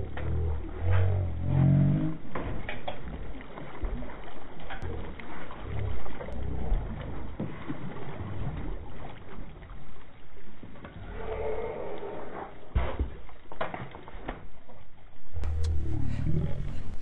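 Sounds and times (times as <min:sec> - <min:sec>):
water splashing against boat: 0:00.0 - 0:17.0
low thuds: 0:15.4 - 0:17.0.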